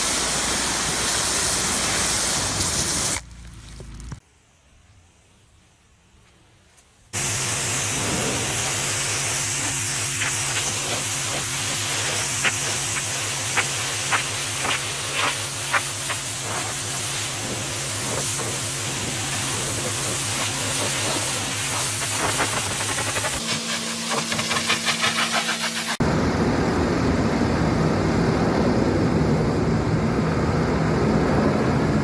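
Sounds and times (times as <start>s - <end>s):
pressure washer spraying: 0.0s - 3.3s, 7.2s - 26.0s.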